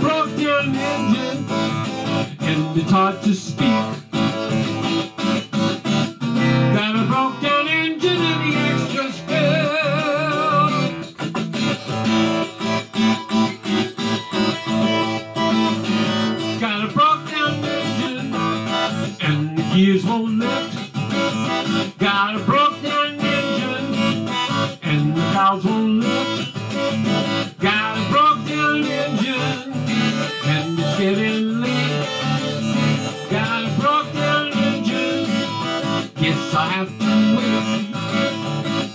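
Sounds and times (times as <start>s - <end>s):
acoustic guitar strumming: 0.0s - 38.9s
harmonica melody: 0.0s - 38.9s.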